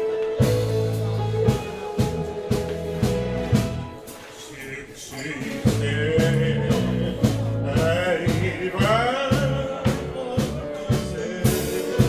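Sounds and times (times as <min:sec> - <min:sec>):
dance band playing a tango: 0:00.0 - 0:04.4, 0:05.4 - 0:12.0
man singing: 0:04.3 - 0:12.0.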